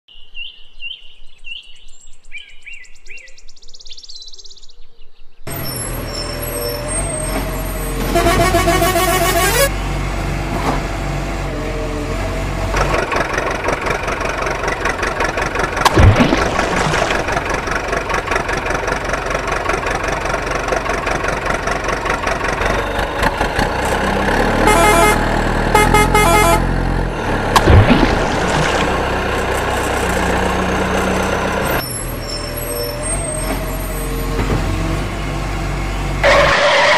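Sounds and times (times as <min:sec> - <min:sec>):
truck engine running: 0:05.5 - 0:36.9
truck horn blasts: 0:05.7 - 0:09.8, 0:22.7 - 0:27.6.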